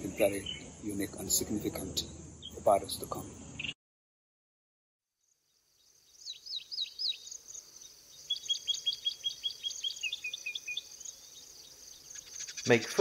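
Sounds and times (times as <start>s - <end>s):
birds singing: 0.0s - 3.8s, 5.5s - 13.0s
high insect buzz: 5.2s - 13.0s.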